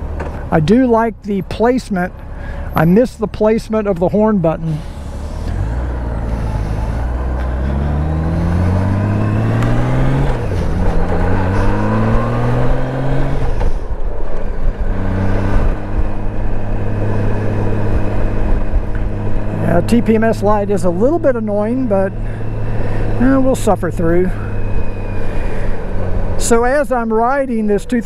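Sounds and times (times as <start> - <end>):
wind and road noise: 0.0 - 28.0
motorcycle engine accelerating: 4.6 - 26.8.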